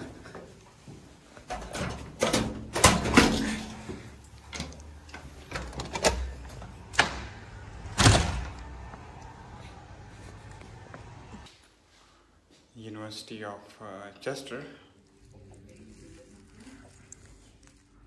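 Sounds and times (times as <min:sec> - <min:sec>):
doors clunking and knocking: 0:01.4 - 0:08.9
heavy door bang: 0:06.9 - 0:08.6.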